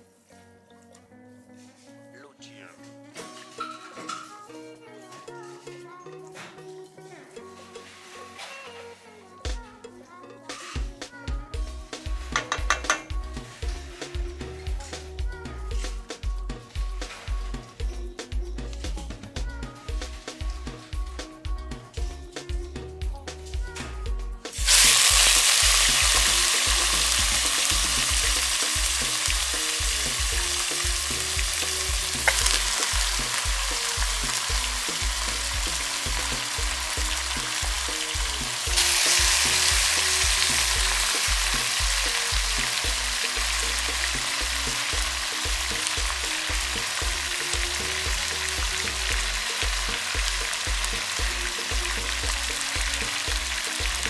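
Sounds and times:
meat sizzling in a pot: 0:11.6 - 0:15.1, 0:24.5 - 0:54.0.

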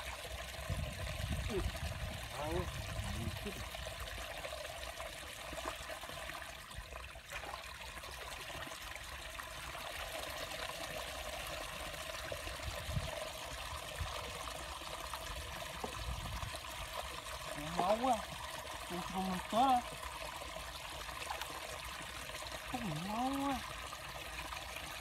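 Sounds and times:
water trickling through mud: 0:00.0 - 0:25.0.

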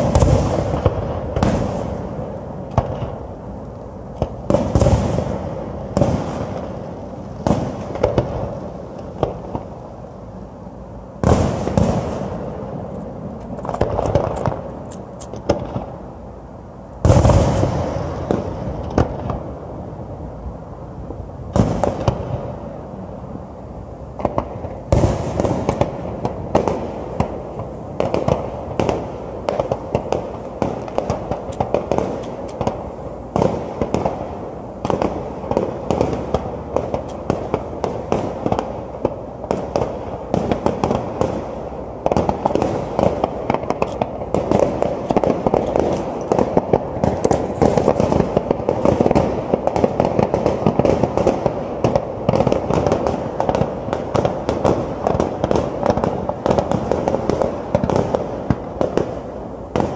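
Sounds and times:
firework shells bursting: 0:11.2 - 0:15.9, 0:17.0 - 0:19.4, 0:28.0 - 0:54.1.

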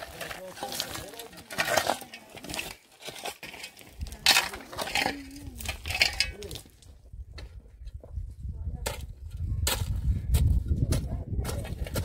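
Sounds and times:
utensils scraping cookware: 0:00.0 - 0:06.6.

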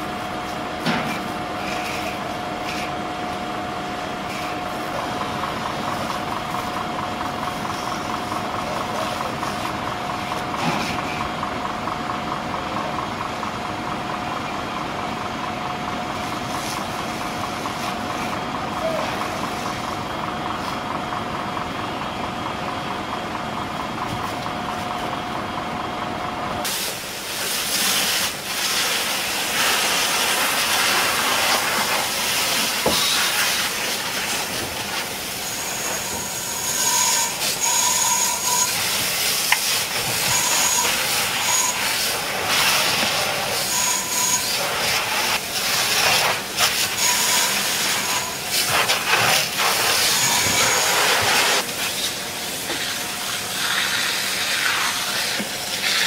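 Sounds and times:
hiss of water spray and steam: 0:26.6 - 0:56.0.

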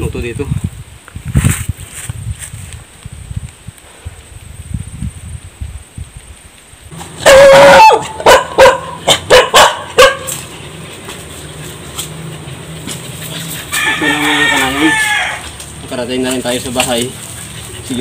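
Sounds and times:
dog barking: 0:07.2 - 0:10.5
dog yelping: 0:07.2 - 0:15.5.

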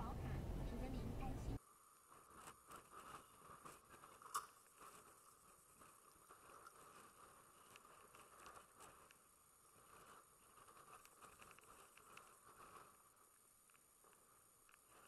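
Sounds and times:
faint ticks: 0:02.4 - 0:15.0.

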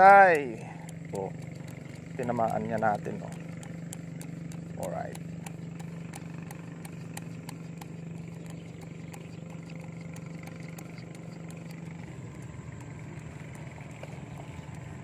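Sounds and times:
engine drone: 0:00.0 - 0:15.0
faint regular clicks: 0:00.0 - 0:15.0.

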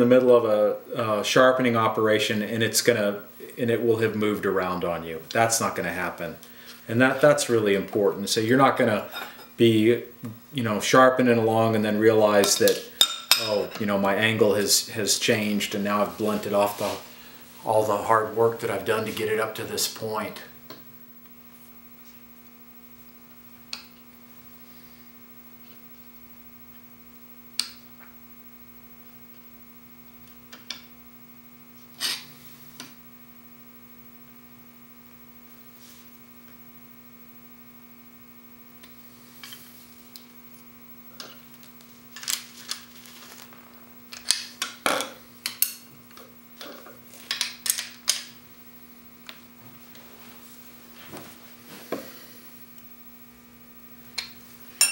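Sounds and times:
electrical hum: 0:00.0 - 0:54.9.

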